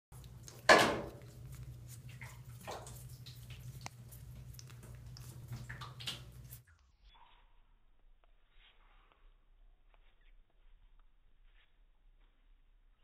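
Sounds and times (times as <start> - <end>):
water dripping in a bathtub: 0.1 - 9.2.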